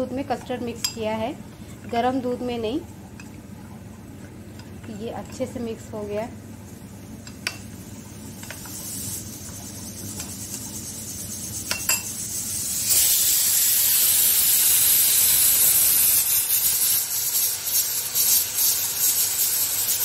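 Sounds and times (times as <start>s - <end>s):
pressure cooker venting steam: 7.5s - 20.0s
spoon clinking against ceramic bowl: 11.7s - 12.1s.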